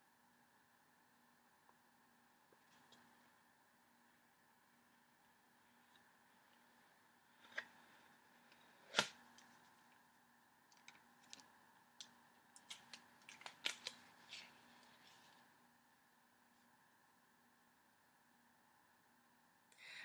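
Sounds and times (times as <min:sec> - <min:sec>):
low room hum: 0:00.0 - 0:20.0
paper and card handled: 0:07.3 - 0:09.8, 0:12.6 - 0:15.5.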